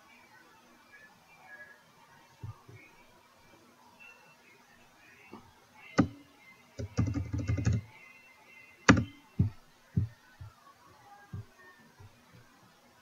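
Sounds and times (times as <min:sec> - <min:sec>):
computer keyboard typing: 0:06.0 - 0:06.2, 0:06.8 - 0:07.9, 0:08.9 - 0:09.5.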